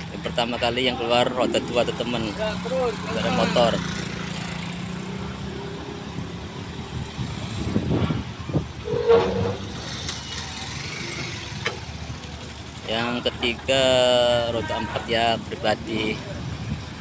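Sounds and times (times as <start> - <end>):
low hum of vehicle engines: 0.0 - 17.0
horn toot: 8.8 - 9.9.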